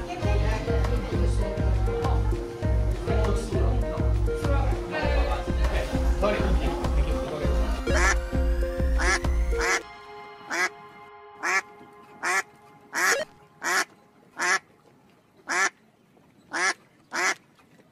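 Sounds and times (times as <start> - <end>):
bass-heavy background music: 0.0 - 13.8
short pitch-bending calls: 7.8 - 9.8, 12.2 - 14.6.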